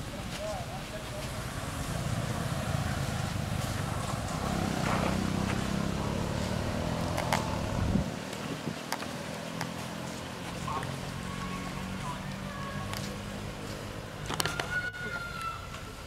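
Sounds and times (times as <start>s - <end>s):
engine running: 1.4s - 14.5s.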